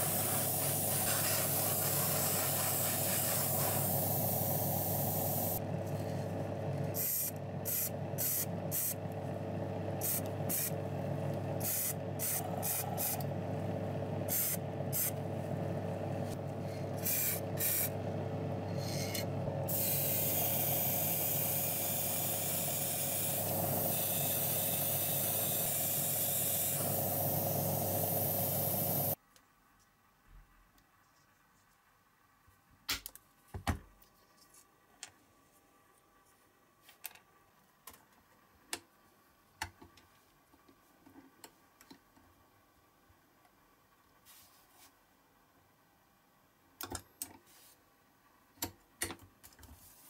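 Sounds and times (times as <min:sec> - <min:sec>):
airbrush spraying paint: 0:00.0 - 0:05.6, 0:06.9 - 0:09.0, 0:10.0 - 0:10.8, 0:11.6 - 0:13.2, 0:14.2 - 0:15.2, 0:17.0 - 0:18.0, 0:18.8 - 0:29.2
steady low hum: 0:00.0 - 0:29.2.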